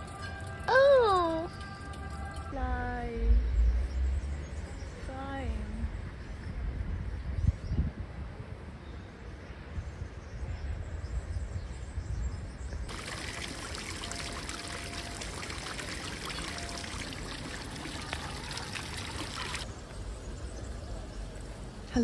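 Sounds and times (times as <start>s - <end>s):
water spraying hiss: 12.9s - 19.7s.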